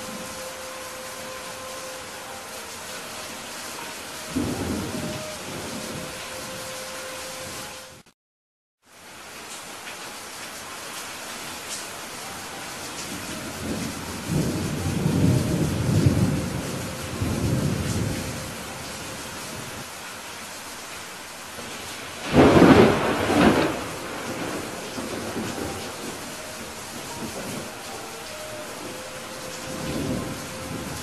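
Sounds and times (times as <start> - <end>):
steady rain: 0.0 - 8.1, 8.8 - 31.0
rumbling thunder: 4.3 - 6.1, 13.2 - 19.8, 21.6 - 27.9, 28.8 - 31.0
sharp thunderclap: 22.2 - 26.1.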